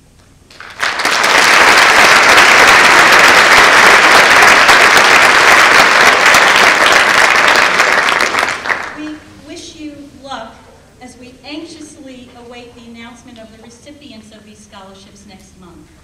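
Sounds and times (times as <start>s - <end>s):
audience applause: 0.5s - 9.0s.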